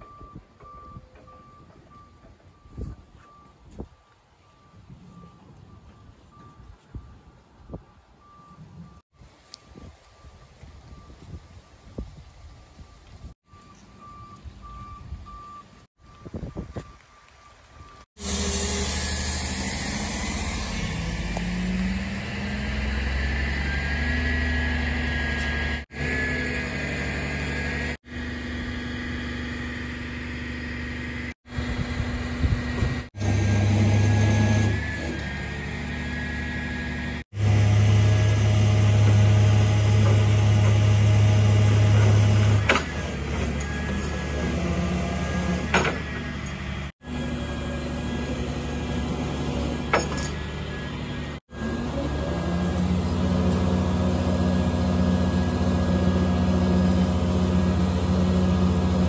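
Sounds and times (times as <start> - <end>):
tow truck engine running: 13.2 - 59.0.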